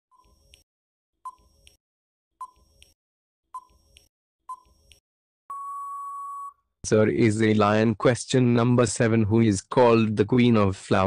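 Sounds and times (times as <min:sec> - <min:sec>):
long steady beep: 0:05.5 - 0:06.6.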